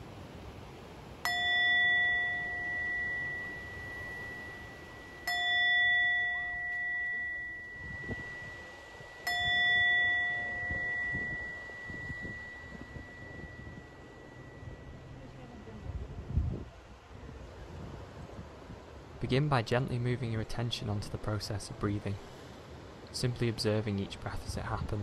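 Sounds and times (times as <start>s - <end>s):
meditation bell ringing: 1.2s - 16.0s.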